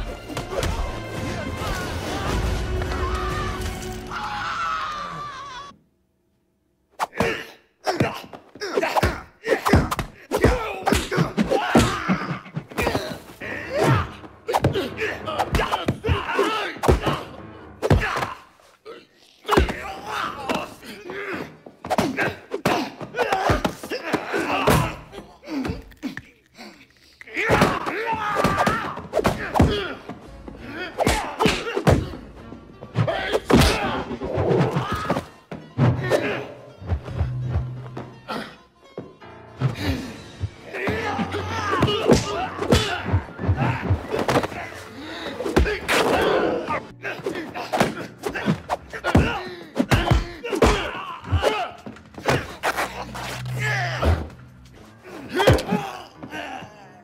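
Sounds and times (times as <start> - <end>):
background music: 0.0 - 57.0
grunts and shouts: 7.1 - 37.4, 38.1 - 38.7, 39.6 - 57.0.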